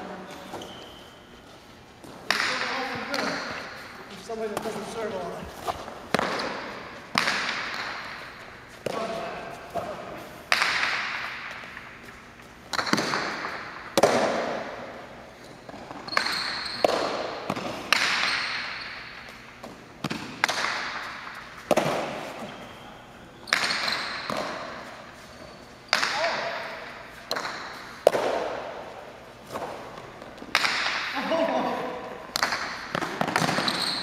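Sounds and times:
ball cracking off walls with echo: 0:02.1 - 0:03.8, 0:06.1 - 0:11.9, 0:12.7 - 0:15.0, 0:16.1 - 0:22.4, 0:25.9 - 0:34.0.

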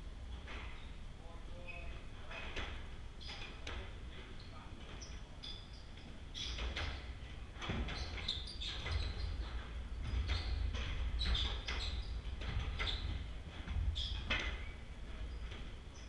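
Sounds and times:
sneakers squeaking on court: 0:07.6 - 0:13.2, 0:13.9 - 0:16.0.

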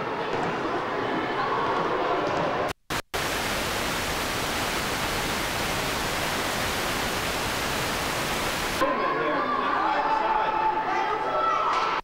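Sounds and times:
loud static hiss: 0:02.8 - 0:08.8.

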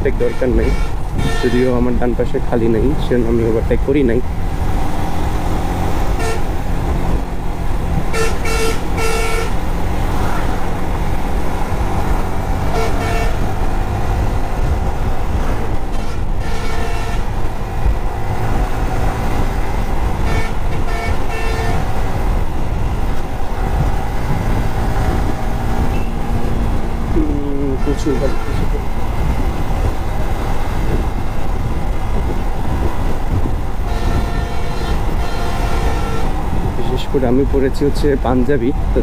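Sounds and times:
motorcycle engine and wind rumble: 0:00.0 - 0:39.0
vehicle horn toots: 0:00.2 - 0:01.9, 0:06.2 - 0:06.6, 0:08.1 - 0:09.6, 0:12.6 - 0:13.6, 0:15.9 - 0:17.4, 0:20.2 - 0:21.9, 0:25.9 - 0:26.4, 0:27.6 - 0:28.8, 0:33.8 - 0:36.5.

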